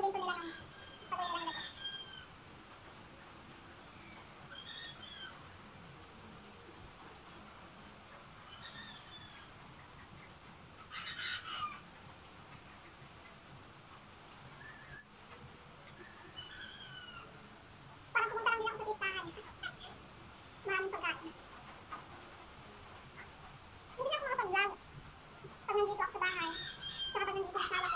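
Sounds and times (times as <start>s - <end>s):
high fast bird chirping: 0.0s - 3.0s, 3.6s - 27.9s.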